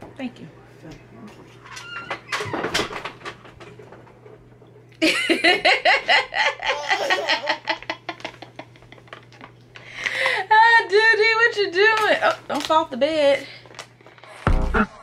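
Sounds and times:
woman laughing: 0:05.0 - 0:09.3.

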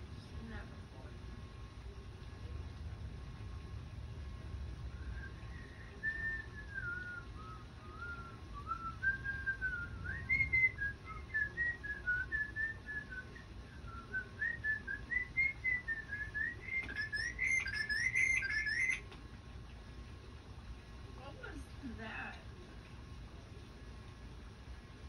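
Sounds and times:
person whistling a tune: 0:06.0 - 0:19.0.

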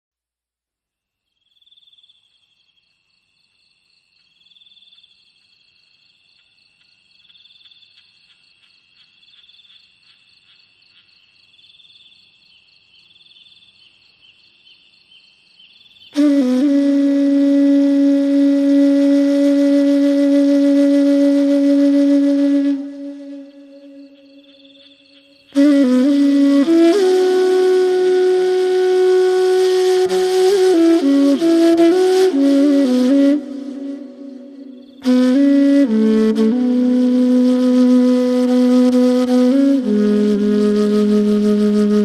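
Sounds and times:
high chirring of insects: 0:01.2 - 0:42.0
bamboo flute held note: 0:16.2 - 0:42.0.

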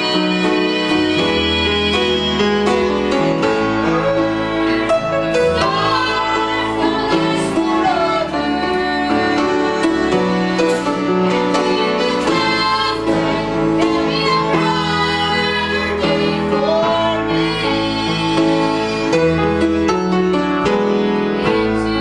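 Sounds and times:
woman singing gospel: 0:00.0 - 0:02.7, 0:05.6 - 0:18.8
piano and band accompaniment: 0:00.0 - 0:22.0.

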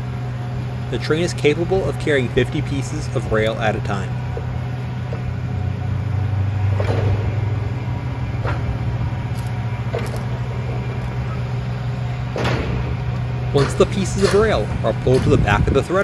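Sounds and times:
diesel engine running: 0:00.0 - 0:16.0.

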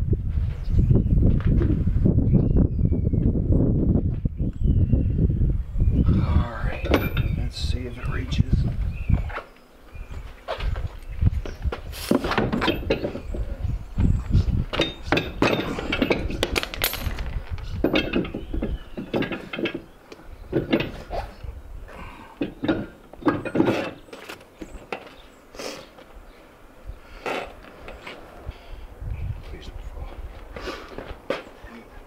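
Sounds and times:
wind rumbling on microphone: 0:00.0 - 0:24.0, 0:26.2 - 0:31.3
tyre knocking and metallic clinks: 0:14.7 - 0:21.0.

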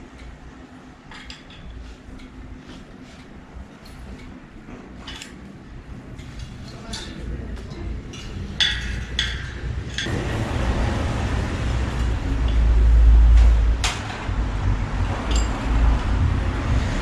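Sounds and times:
spanner clinking on metal: 0:05.0 - 0:05.5, 0:06.1 - 0:10.2, 0:11.9 - 0:12.9, 0:15.1 - 0:16.0
loud low rumble: 0:10.1 - 0:17.0.

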